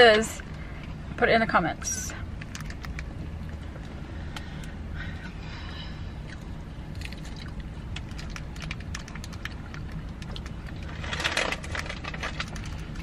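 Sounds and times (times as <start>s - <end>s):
low hum inside car: 0.0s - 13.0s
person eating ice cream: 6.1s - 11.0s.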